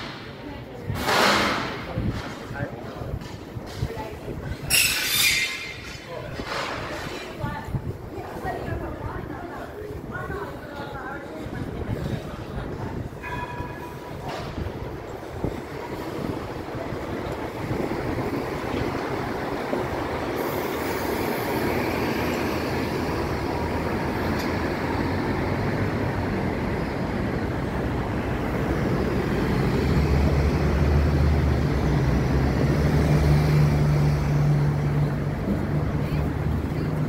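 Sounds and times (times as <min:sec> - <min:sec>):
cars and buses passing: 0:00.0 - 0:37.0
heavy vehicle engine drone: 0:11.6 - 0:37.0.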